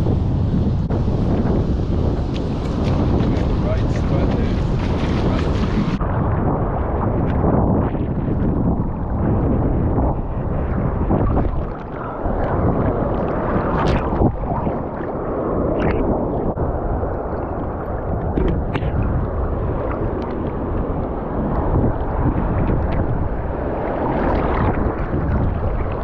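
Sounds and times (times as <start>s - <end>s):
ocean surf sloshing: 0.0s - 26.0s
wind buffeting microphone: 0.0s - 26.0s
sharp water splashes: 11.0s - 26.0s.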